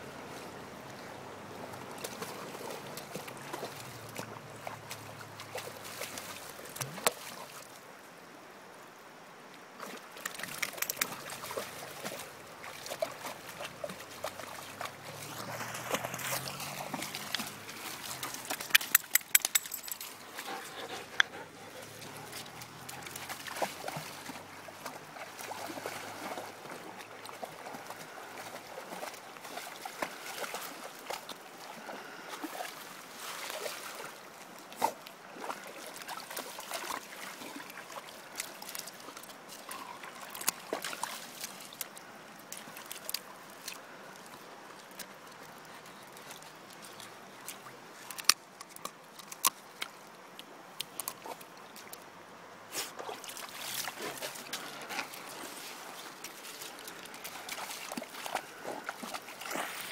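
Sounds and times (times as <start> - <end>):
dog splashing through water: 1.8 - 7.6, 9.8 - 41.8, 52.7 - 59.9
sharp clicks: 18.6 - 19.8.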